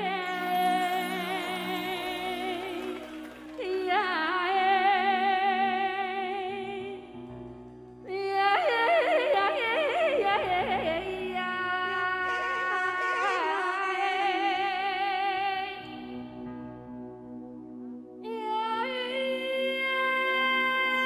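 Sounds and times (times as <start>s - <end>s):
woman singing with vibrato: 0.0s - 7.0s, 8.1s - 16.1s, 18.2s - 21.0s
sustained backing chord: 0.0s - 8.1s.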